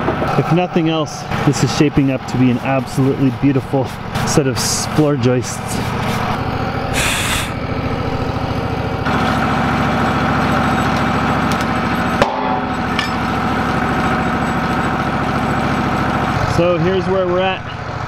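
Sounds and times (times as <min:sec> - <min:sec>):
sawmill engine running: 0:00.0 - 0:18.0
short hiss: 0:07.0 - 0:07.6.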